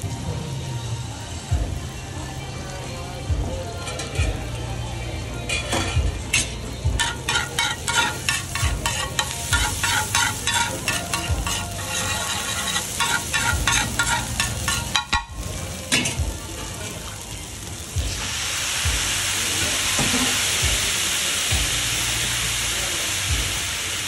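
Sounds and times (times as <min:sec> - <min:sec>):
metal spatula scraping griddle: 0:05.5 - 0:16.2
egg sizzling: 0:05.5 - 0:24.0.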